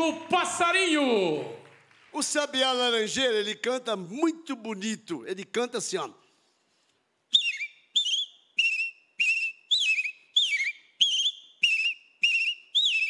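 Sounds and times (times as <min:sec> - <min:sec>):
man whistling birdsong imitation: 0:07.3 - 0:13.0.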